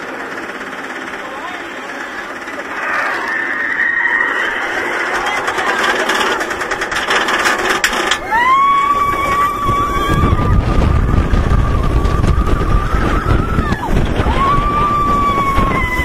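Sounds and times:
roller coaster clattering up lift: 0.0s - 16.0s
riders screaming: 2.3s - 6.6s, 7.9s - 16.0s
rushing wind and track rumble: 4.2s - 16.0s.

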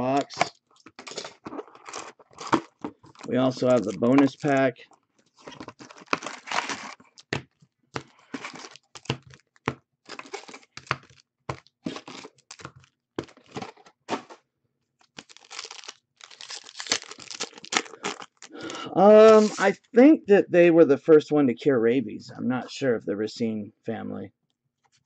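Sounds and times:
foil pack tearing open: 0.2s - 4.6s, 5.4s - 7.2s, 8.2s - 9.4s, 10.1s - 13.8s, 15.1s - 19.7s
foil wrappers crinkling: 0.3s - 4.7s, 5.4s - 7.4s, 8.0s - 9.4s, 10.1s - 13.8s, 15.0s - 19.7s.

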